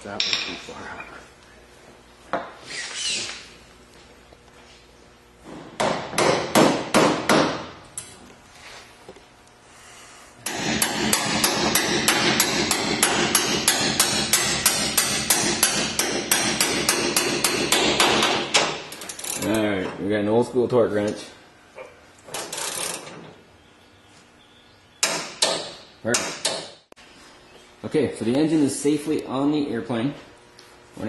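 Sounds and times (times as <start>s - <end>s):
loud metallic knocks: 5.5s - 7.8s, 10.4s - 18.9s, 25.0s - 26.8s
ratchet wrench clicking: 18.9s - 19.6s, 22.4s - 23.1s.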